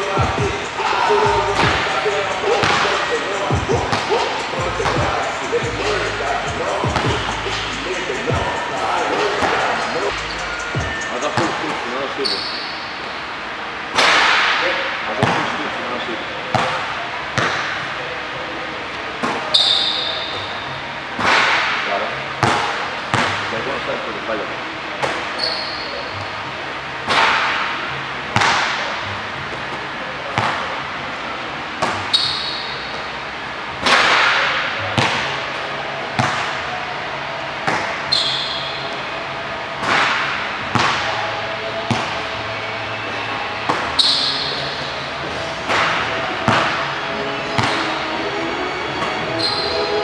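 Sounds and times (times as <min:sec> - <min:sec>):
sneakers squeaking on court: 0:01.1 - 0:13.1, 0:19.2 - 0:20.8, 0:25.0 - 0:26.4, 0:31.8 - 0:33.2, 0:37.6 - 0:39.1, 0:43.1 - 0:45.1, 0:45.7 - 0:48.0, 0:49.0 - 0:50.0
basketball bouncing in gym: 0:01.2 - 0:05.3, 0:06.8 - 0:07.6, 0:16.5 - 0:17.8, 0:22.4 - 0:23.5, 0:28.4 - 0:28.8, 0:30.3 - 0:30.7, 0:31.8 - 0:33.0, 0:34.9 - 0:35.4, 0:36.1 - 0:36.6, 0:39.8 - 0:41.2, 0:41.9 - 0:42.2, 0:45.6 - 0:46.8, 0:47.6 - 0:47.9.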